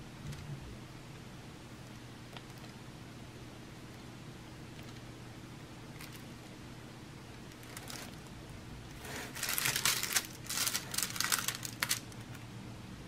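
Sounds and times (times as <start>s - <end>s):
plastic film crinkling: 7.5s - 8.2s, 9.2s - 12.4s.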